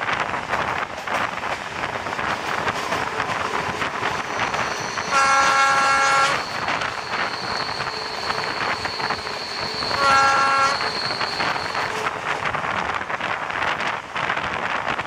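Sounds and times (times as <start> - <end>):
locomotive engine and wheels running: 0.0 - 15.0
thin high whine: 2.5 - 12.9
locomotive horn blast: 4.8 - 7.4, 9.6 - 12.3.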